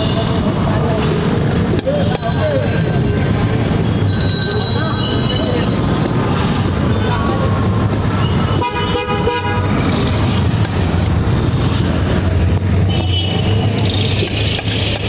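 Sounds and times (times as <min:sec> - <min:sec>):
traffic engine hum: 0:00.0 - 0:15.0
vehicle horns honking: 0:08.2 - 0:10.1.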